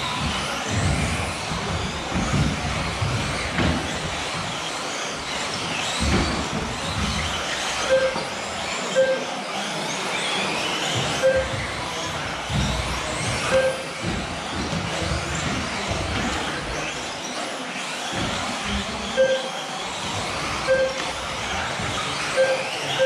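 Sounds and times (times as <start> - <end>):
rc car motors whining: 0.0 - 23.0
short beeps: 7.9 - 8.2, 9.0 - 9.3, 11.2 - 11.5, 13.5 - 13.8, 19.2 - 19.6, 20.7 - 21.0, 22.4 - 23.0.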